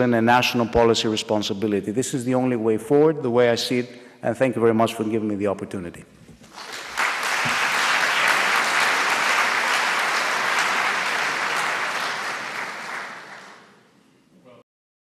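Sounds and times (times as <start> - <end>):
audience applauding: 6.5 - 13.8.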